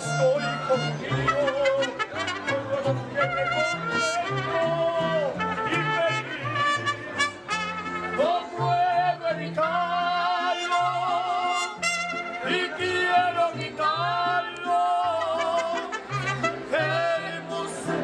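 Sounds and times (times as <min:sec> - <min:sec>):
trumpet: 0:00.0 - 0:08.9, 0:09.6 - 0:12.9, 0:15.0 - 0:17.3
guitars: 0:00.0 - 0:18.0
violins: 0:00.0 - 0:18.0
band members singing: 0:12.4 - 0:15.8, 0:16.7 - 0:18.0.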